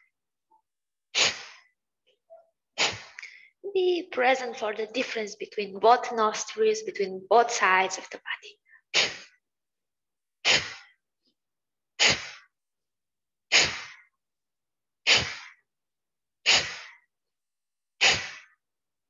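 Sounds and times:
forceful nostril breaths: 1.1s - 1.8s, 2.8s - 3.6s, 8.6s - 9.4s, 10.4s - 11.0s, 12.0s - 12.6s, 13.5s - 14.2s, 15.0s - 15.7s, 16.4s - 17.1s, 18.0s - 18.6s.

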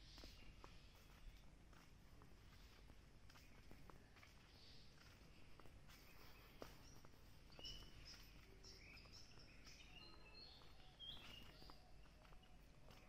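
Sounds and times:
faint birds chirping: 0.0s - 13.0s.

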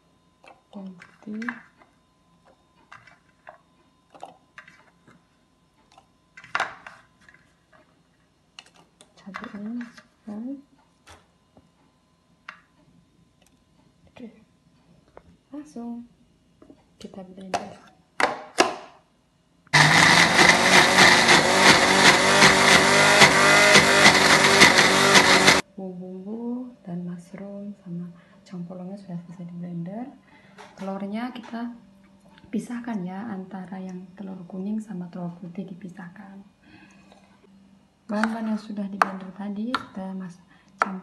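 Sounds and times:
blender motor grinding: 19.8s - 25.6s.

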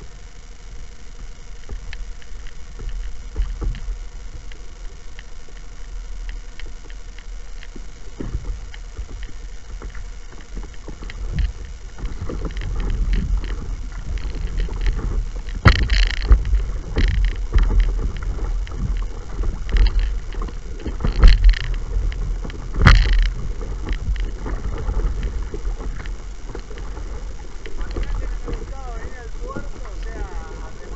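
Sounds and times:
steady low rumble: 0.0s - 30.9s
water splashing against paddleboard: 1.6s - 30.9s.

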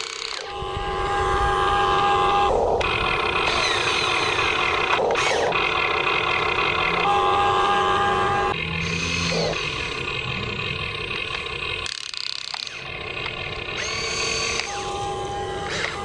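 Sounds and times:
toy excavator whining: 0.0s - 16.0s.

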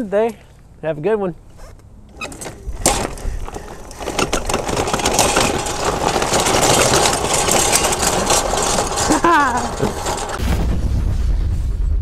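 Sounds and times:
electric quad driving over gravel: 1.5s - 10.4s.

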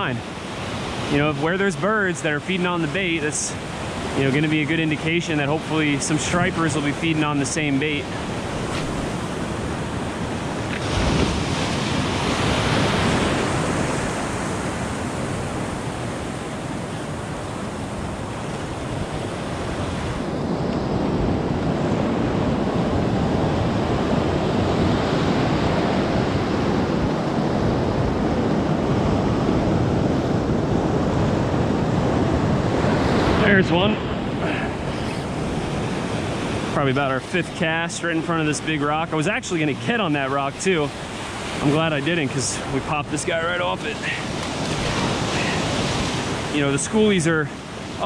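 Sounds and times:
surf breaking on rocks: 0.0s - 17.1s, 30.9s - 48.0s
wind buffeting microphone: 2.7s - 48.0s.

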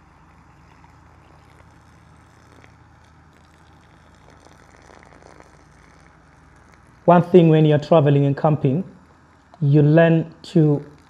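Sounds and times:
water trickling onto grass: 0.0s - 7.1s, 10.5s - 11.0s.

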